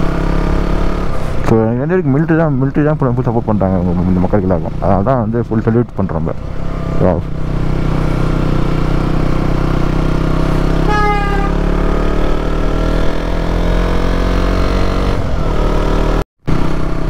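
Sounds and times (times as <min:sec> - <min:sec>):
motorcycle engine running: 0:00.0 - 0:17.0
short high-pitched tone: 0:10.8 - 0:11.8.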